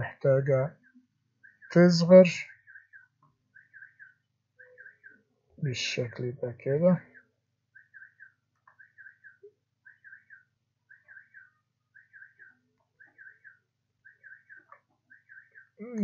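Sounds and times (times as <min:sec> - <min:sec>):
small bird chirping: 0:00.7 - 0:06.2, 0:06.8 - 0:16.0.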